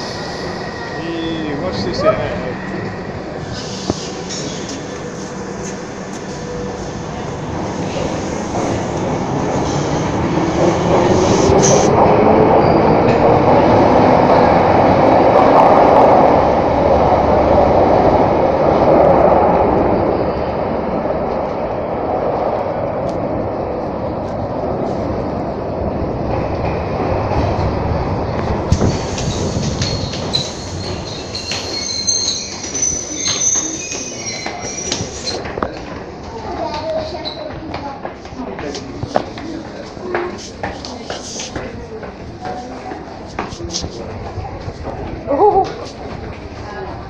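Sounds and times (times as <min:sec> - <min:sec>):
train rumble: 0:00.0 - 0:47.0
wheel squeals: 0:29.2 - 0:35.5.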